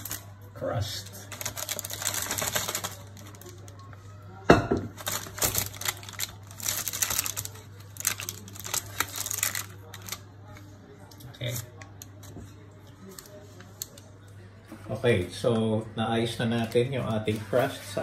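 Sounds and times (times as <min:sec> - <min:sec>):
baking paper crinkling: 0:00.0 - 0:04.1, 0:04.9 - 0:14.1.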